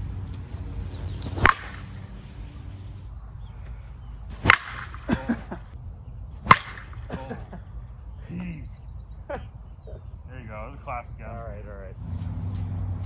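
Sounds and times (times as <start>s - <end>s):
bat cracking against softball: 0.3s - 2.6s, 3.6s - 5.5s, 6.4s - 7.2s.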